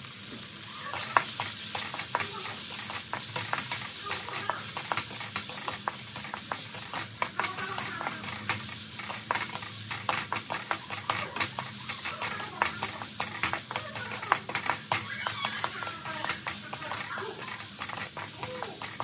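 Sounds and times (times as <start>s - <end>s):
meat sizzling: 0.0s - 19.0s
wooden spatula scraping a wok: 0.8s - 19.0s.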